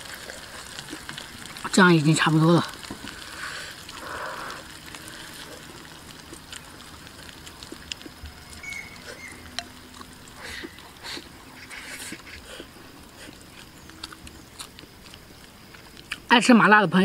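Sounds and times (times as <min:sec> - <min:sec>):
person chewing and slurping: 0:02.8 - 0:16.3.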